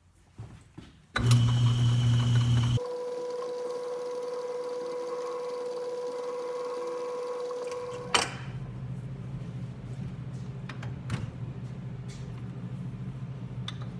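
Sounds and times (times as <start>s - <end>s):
metal lathe humming: 1.2s - 8.0s.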